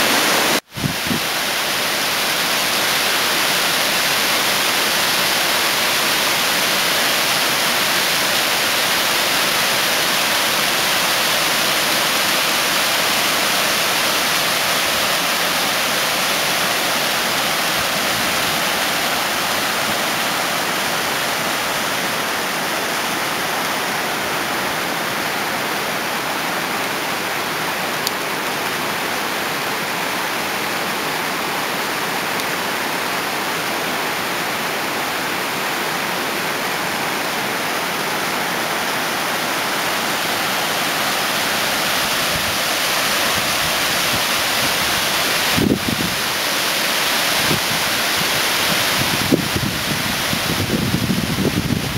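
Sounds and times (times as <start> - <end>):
stream cascading over rocks: 0.0 - 51.9.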